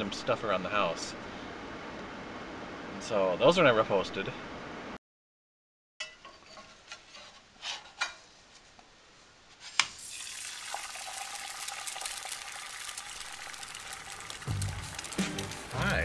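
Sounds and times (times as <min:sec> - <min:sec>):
pancake sizzling in skillet: 0:09.8 - 0:16.0.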